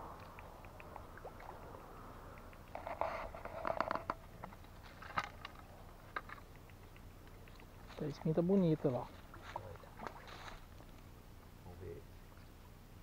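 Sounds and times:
faint low rumble: 0.0 - 13.0.

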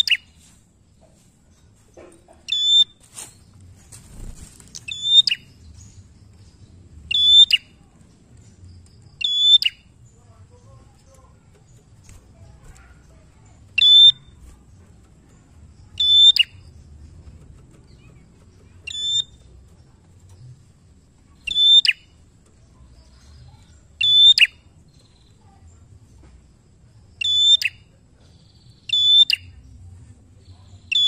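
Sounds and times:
warbler high ringing calls: 0.0 - 0.3, 2.5 - 3.0, 4.9 - 5.6, 7.1 - 7.8, 9.2 - 10.0, 13.8 - 14.4, 16.0 - 16.7, 18.9 - 19.5, 21.4 - 22.1, 23.1 - 25.3, 27.2 - 27.8, 28.7 - 29.6.

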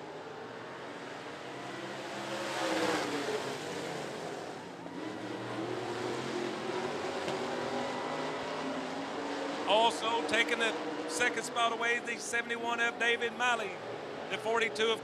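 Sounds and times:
race car engines passing: 0.0 - 15.0.

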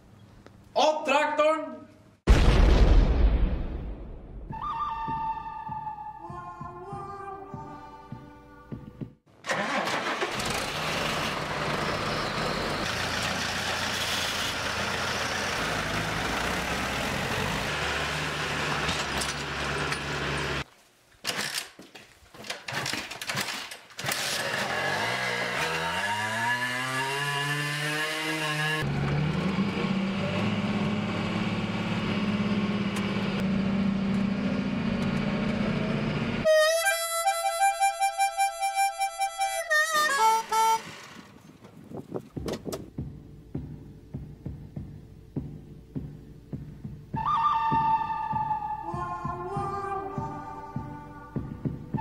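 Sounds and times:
harmonica music: 4.5 - 9.2, 36.4 - 41.3, 47.1 - 52.0
tractor engines running: 9.4 - 20.7, 28.8 - 45.2
motorcycle engine revving: 24.2 - 36.5.

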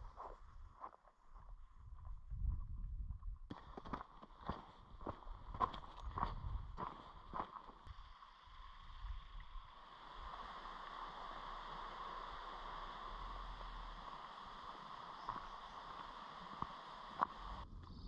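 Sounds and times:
footsteps on stones: 3.5 - 7.9
stream rushing: 9.6 - 17.6.

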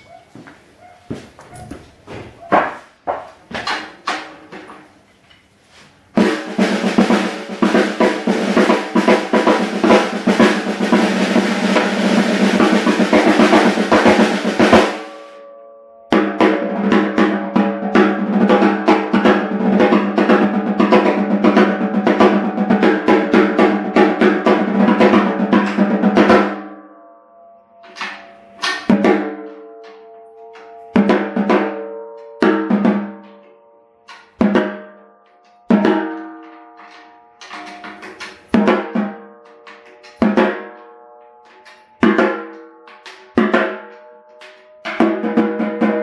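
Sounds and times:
snare drum rapid strokes: 6.2 - 15.3.

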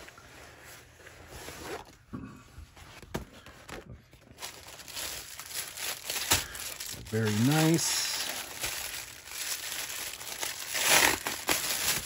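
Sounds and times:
plastic cover rustling: 3.0 - 12.0.

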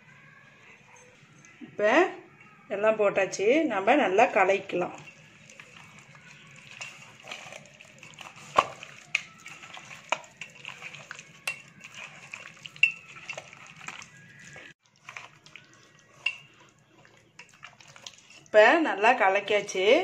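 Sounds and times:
hand squishing fish in marinade: 5.0 - 18.6.

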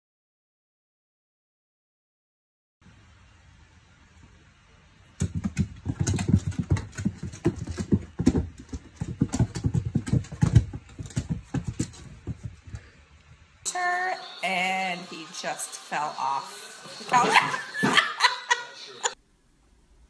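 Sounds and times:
cat paws scrabbling on floor: 5.2 - 13.1.

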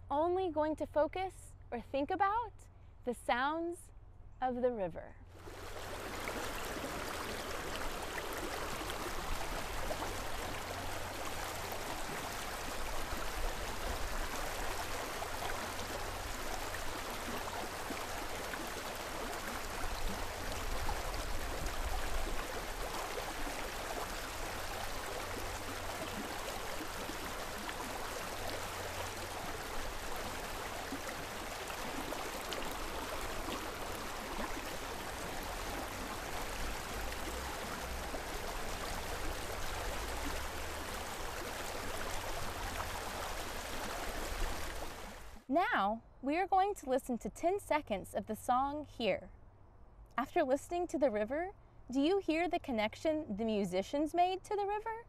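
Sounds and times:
water rushing over rocks: 5.4 - 45.5.

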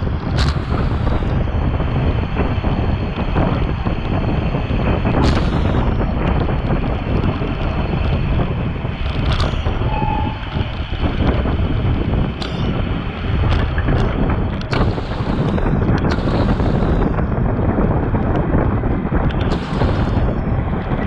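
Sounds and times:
wind buffeting microphone: 0.0 - 21.0
sharp clicks: 0.3 - 1.4, 5.2 - 8.2, 9.0 - 11.6, 12.3 - 17.3, 19.2 - 21.0
faint tone: 9.4 - 11.3.

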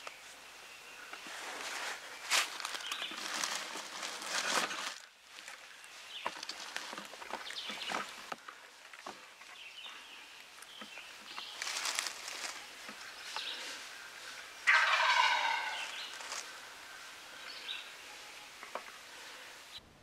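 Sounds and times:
turkey gobbling: 14.6 - 16.6.

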